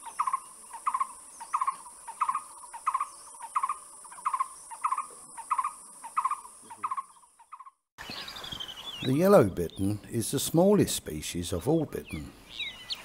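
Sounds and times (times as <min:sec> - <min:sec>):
bird calling: 0:00.0 - 0:10.1, 0:11.5 - 0:13.0.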